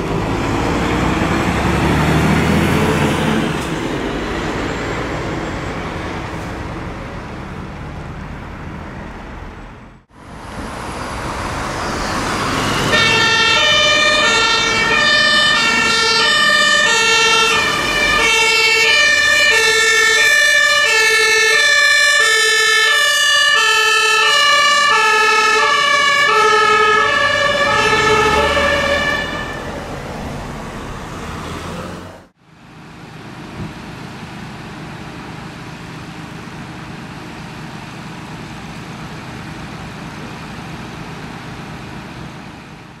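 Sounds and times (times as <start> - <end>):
fire engine two-tone siren: 11.6 - 31.5.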